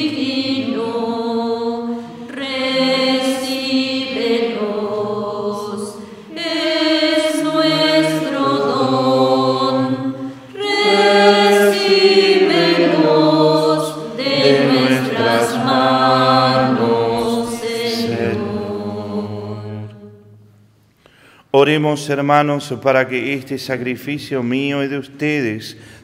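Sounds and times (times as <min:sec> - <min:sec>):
voices singing a hymn: 0:00.0 - 0:20.4.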